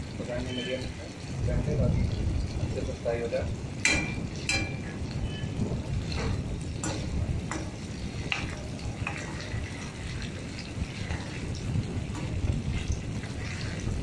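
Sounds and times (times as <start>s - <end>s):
food sizzling in hot oil: 0.0s - 14.0s
steel spoon clinking on pan: 3.8s - 4.9s.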